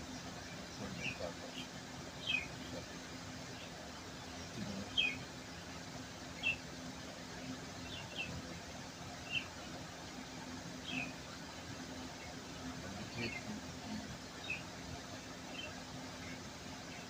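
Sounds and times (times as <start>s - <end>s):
small bird chirping: 0.0s - 2.8s, 3.4s - 5.2s, 6.3s - 6.6s, 7.8s - 8.4s, 9.2s - 9.7s, 10.8s - 11.3s, 12.1s - 14.7s, 15.3s - 17.0s
steady low hum: 0.0s - 17.0s.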